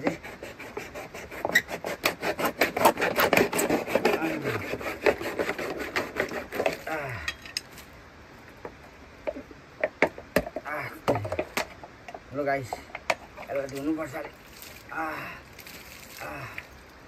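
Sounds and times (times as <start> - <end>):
plastic bottle being sawn: 0.0 - 6.9.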